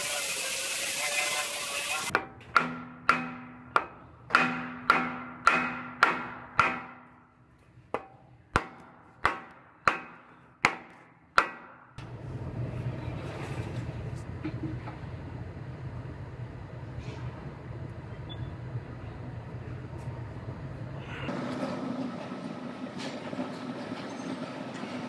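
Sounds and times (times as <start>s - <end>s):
hammer striking wooden block: 2.1s - 7.3s, 7.9s - 12.0s.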